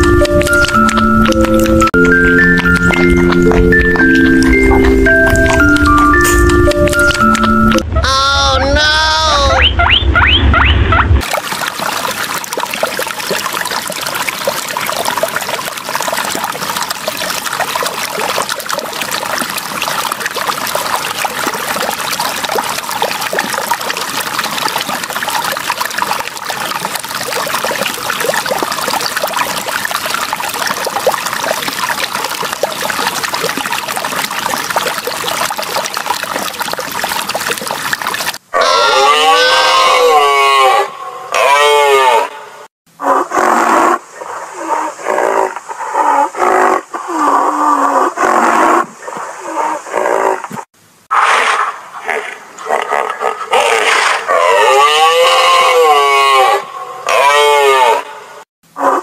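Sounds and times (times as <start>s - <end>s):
water trickling: 0.0s - 7.8s, 11.2s - 38.4s.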